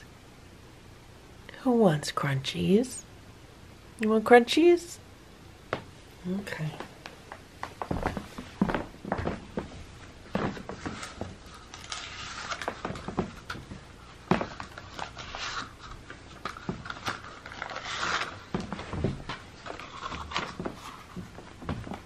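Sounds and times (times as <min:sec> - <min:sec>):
paper liners crinkling: 0:10.6 - 0:21.1.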